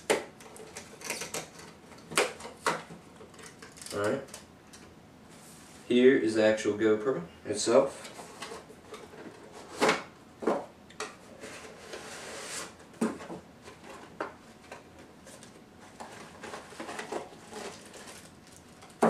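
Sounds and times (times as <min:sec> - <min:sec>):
packaging rustle: 0:15.2 - 0:19.0.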